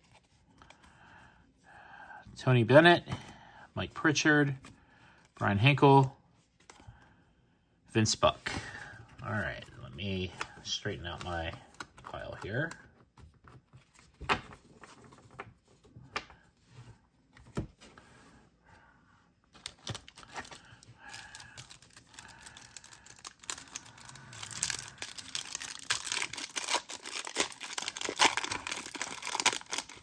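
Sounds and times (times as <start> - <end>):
foil pack crinkling and tearing: 19.6 - 30.0.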